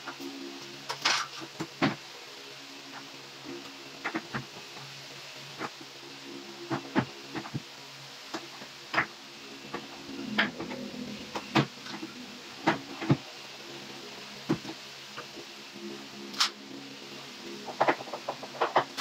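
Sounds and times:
faint steady hum: 0.0s - 19.0s.

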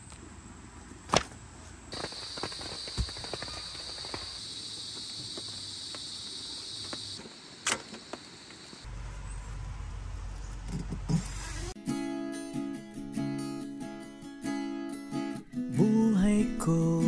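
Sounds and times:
insects trilling: 1.9s - 8.9s.

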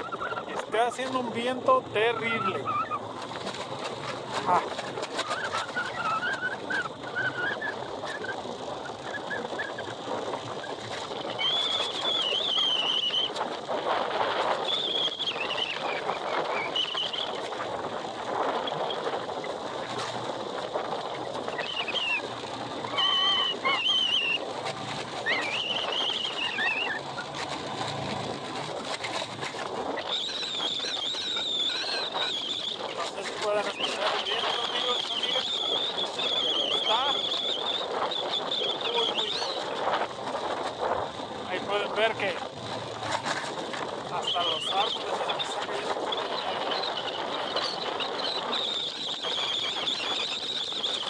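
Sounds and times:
high wavering whistles: 0.0s - 0.9s, 2.0s - 3.1s, 5.1s - 9.9s, 11.2s - 13.4s, 14.6s - 17.4s, 21.5s - 27.5s, 29.9s - 39.8s, 44.1s - 51.0s.

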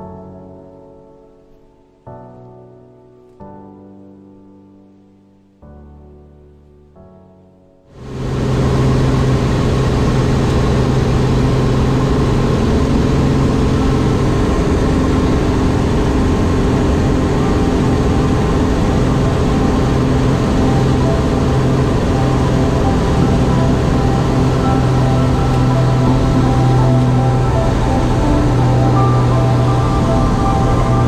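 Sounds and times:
propeller plane engine drone: 8.0s - 31.0s.

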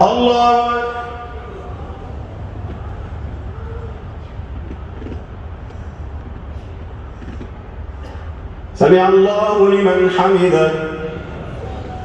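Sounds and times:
faint murmured voices: 0.0s - 8.8s, 10.0s - 12.0s
low rumble: 10.8s - 12.0s.

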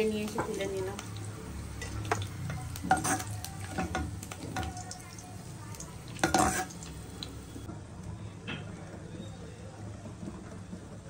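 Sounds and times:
hot oil sizzling: 0.0s - 7.7s
spoon scraping a pan: 1.7s - 5.0s, 6.0s - 7.1s.

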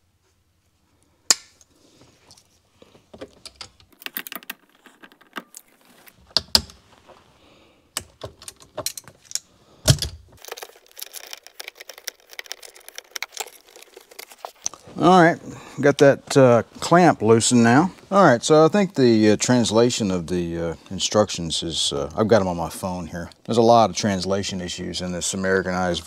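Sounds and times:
pliers clicking and rattling on metal: 8.0s - 10.2s.

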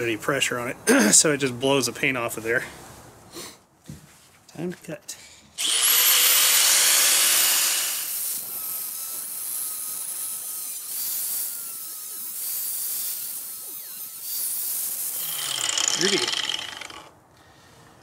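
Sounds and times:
angle grinder cutting metal: 5.6s - 17.1s.

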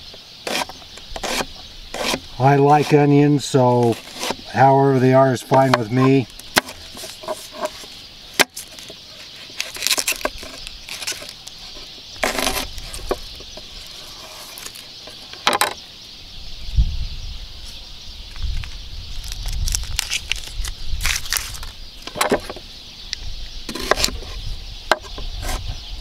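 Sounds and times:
onion skin rustling: 8.6s - 13.2s, 19.2s - 21.7s.

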